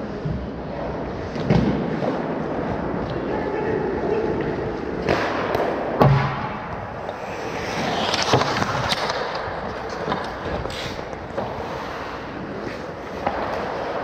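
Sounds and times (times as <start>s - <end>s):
heavy bang with deep thud: 5.1s - 6.6s
hockey sticks clacking on puck: 7.1s - 14.0s.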